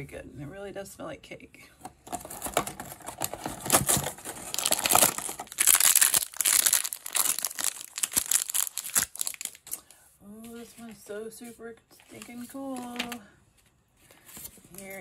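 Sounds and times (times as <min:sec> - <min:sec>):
cardboard tearing: 0:02.1 - 0:09.7
plastic wrapper crinkling and tearing: 0:02.1 - 0:10.0.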